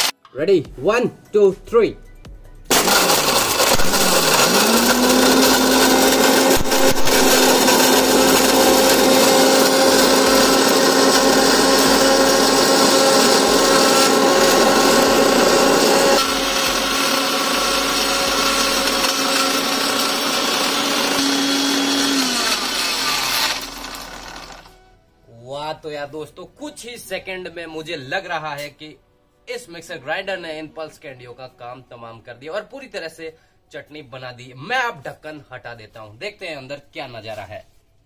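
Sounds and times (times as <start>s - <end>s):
candies rattling and grinding: 2.7s - 16.8s
motor spinning down: 2.7s - 24.7s
mixer grinder motor whine: 2.7s - 24.8s.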